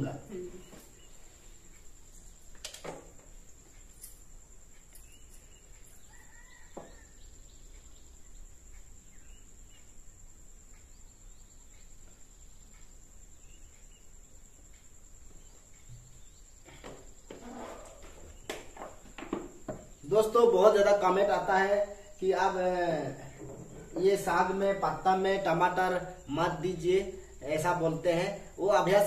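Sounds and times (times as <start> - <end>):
faint chirp: 0.0 - 2.6, 3.4 - 19.0.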